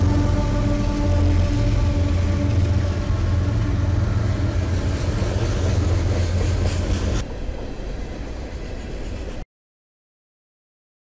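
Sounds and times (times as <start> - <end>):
freight cars rumbling and rattling: 0.0 - 9.4
locomotive engines droning: 0.0 - 9.4.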